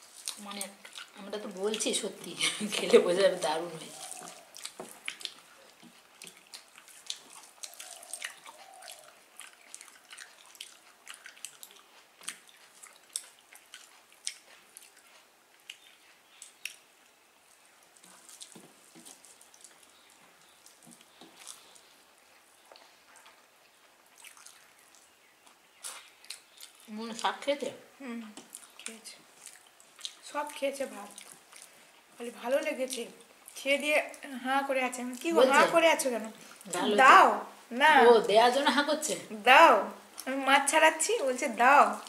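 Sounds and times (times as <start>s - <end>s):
chewing: 0.0s - 3.0s, 3.6s - 27.5s, 28.2s - 34.2s, 40.0s - 40.4s.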